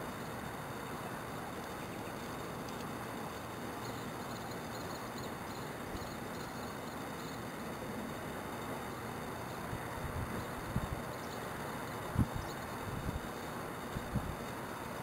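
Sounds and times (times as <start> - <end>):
outdoor background rush: 0.0 - 15.0
faint high chirping: 3.7 - 7.5, 10.4 - 12.8.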